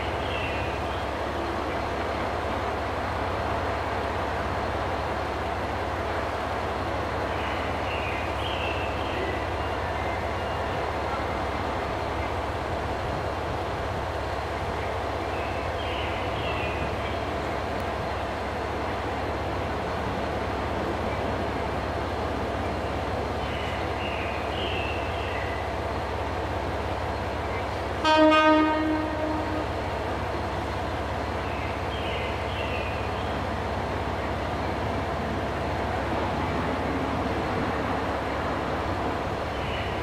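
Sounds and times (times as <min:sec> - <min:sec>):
street traffic rumble: 0:00.0 - 0:40.0
train horn blast: 0:28.0 - 0:29.9.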